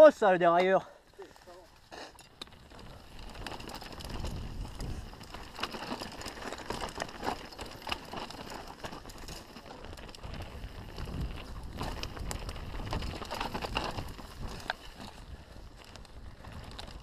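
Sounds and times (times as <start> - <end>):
tyres running over dirt and stones: 0.5 - 17.0
bike chain and frame rattling: 0.8 - 17.0
wind rumble on microphone: 2.5 - 6.3, 9.1 - 17.0.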